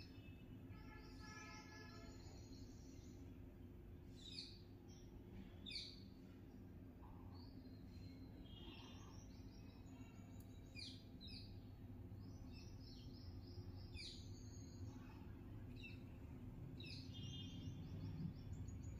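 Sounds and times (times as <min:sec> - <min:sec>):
low steady background hum: 0:00.0 - 0:18.9
faint bird chirps: 0:07.0 - 0:16.2.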